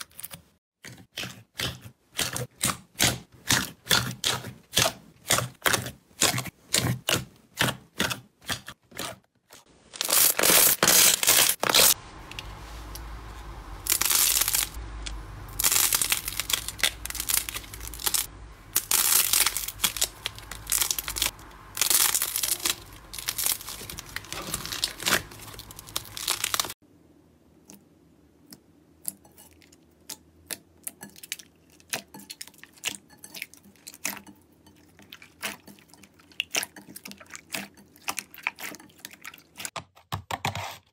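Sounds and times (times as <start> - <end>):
slime tearing crackly: 9.9 - 12.0, 15.6 - 26.8.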